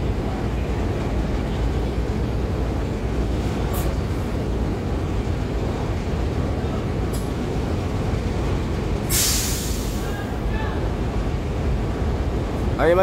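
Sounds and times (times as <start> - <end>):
compressed air hiss: 9.0 - 10.0.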